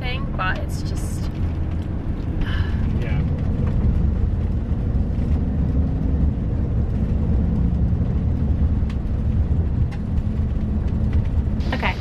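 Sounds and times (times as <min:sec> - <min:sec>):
low rumble of engine and tyres: 0:00.0 - 0:12.0.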